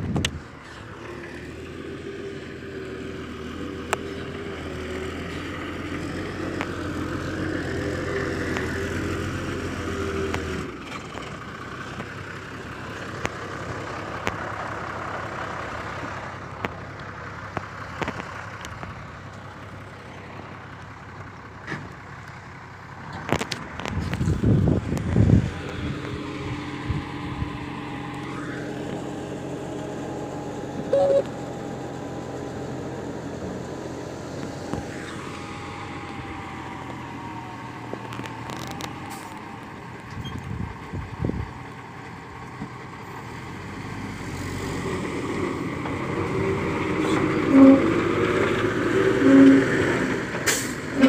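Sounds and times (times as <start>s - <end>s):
truck diesel engine running: 0.0s - 51.0s
loud low rumbling: 23.6s - 36.8s.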